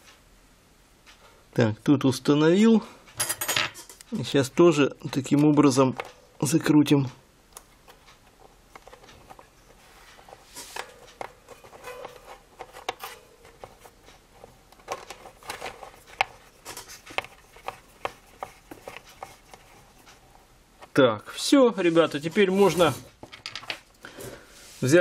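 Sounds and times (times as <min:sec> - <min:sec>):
metal-on-metal scraping: 0:08.8 - 0:20.2.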